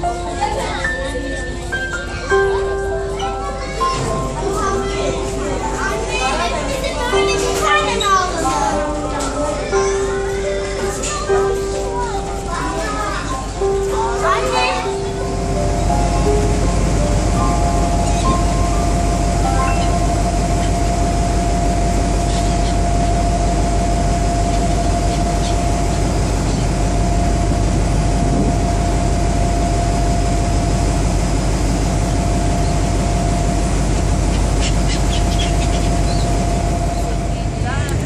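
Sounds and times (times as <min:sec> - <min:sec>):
ferry engine rumble: 0:00.0 - 0:38.0
churning wake: 0:09.6 - 0:38.0
high whine: 0:13.6 - 0:38.0.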